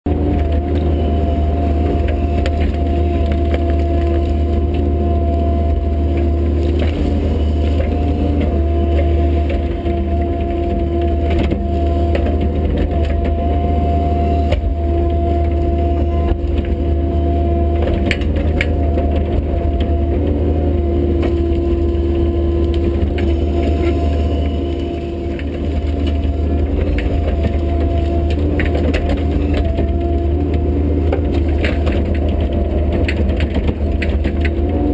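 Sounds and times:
diesel engine running with whine: 0.0s - 34.9s
wood cracking and splintering: 0.1s - 13.7s, 14.4s - 34.9s.

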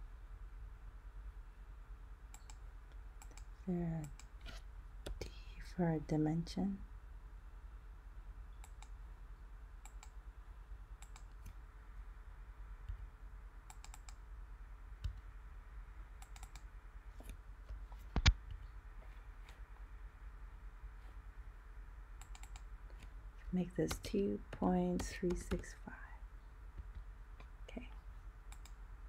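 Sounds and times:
faint low hum: 0.0s - 29.0s
mouse and keyboard clicks: 2.3s - 2.6s, 11.0s - 11.6s, 13.7s - 14.2s, 16.2s - 17.4s, 22.2s - 23.1s, 23.8s - 25.7s, 28.5s - 28.8s.

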